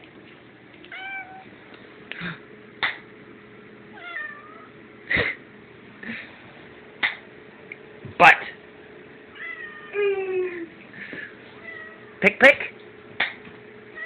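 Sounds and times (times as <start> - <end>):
cat meowing: 0.9 - 1.5, 4.0 - 4.7, 9.4 - 10.0.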